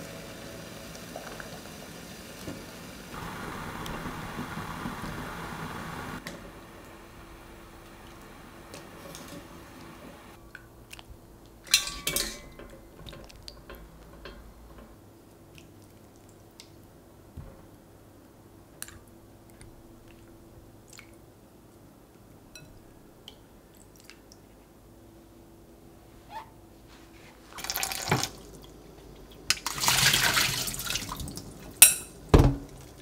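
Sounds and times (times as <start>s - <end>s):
soft wet squishes: 10.5s - 11.6s, 15.2s - 17.0s, 18.8s - 21.9s, 23.2s - 24.8s
glass clink: 11.7s - 12.8s, 31.8s - 32.2s
water splashes: 29.5s - 31.5s.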